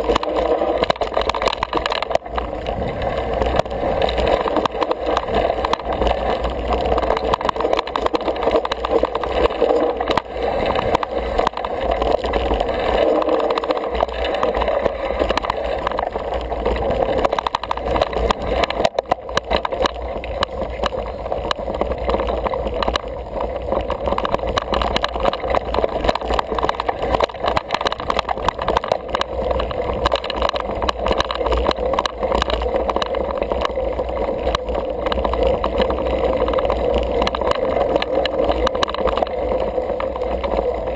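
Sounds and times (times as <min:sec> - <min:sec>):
bike rattling over dirt: 0:00.0 - 0:40.9.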